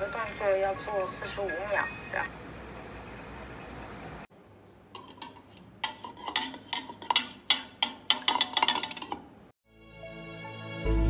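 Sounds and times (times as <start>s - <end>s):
spoon clinking in a cup: 5.0s - 9.2s.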